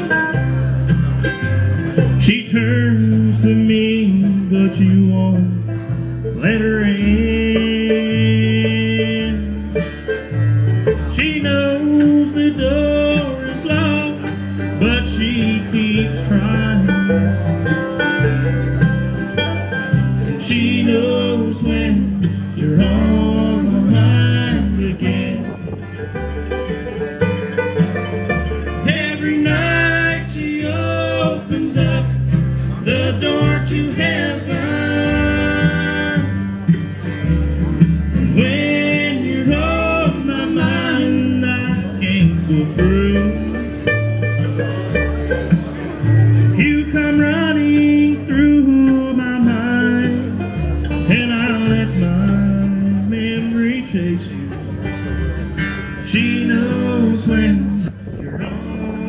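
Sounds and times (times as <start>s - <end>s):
bluegrass band playing: 0.0s - 59.0s
people singing: 20.4s - 25.8s, 28.8s - 32.2s, 32.8s - 36.5s, 38.3s - 43.7s.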